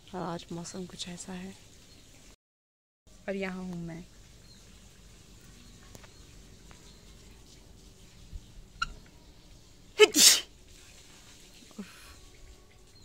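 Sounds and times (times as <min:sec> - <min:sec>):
woman sneezing: 0:10.0 - 0:10.5.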